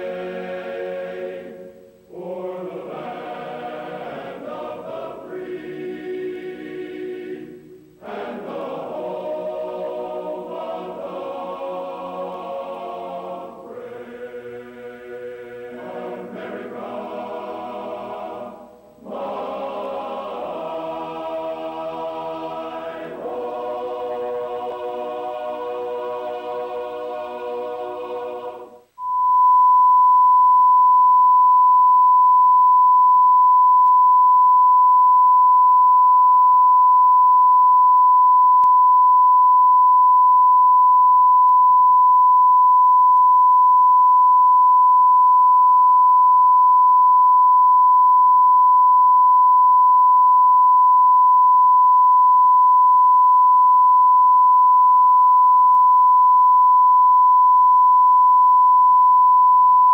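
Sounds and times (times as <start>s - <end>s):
steady test tone: 28.8s - 59.9s.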